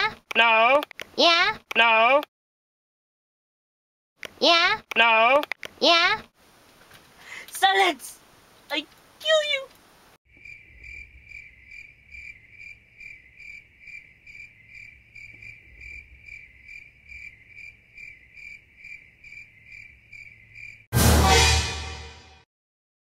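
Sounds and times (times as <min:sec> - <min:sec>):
crickets chirping: 0:10.3 - 0:20.9.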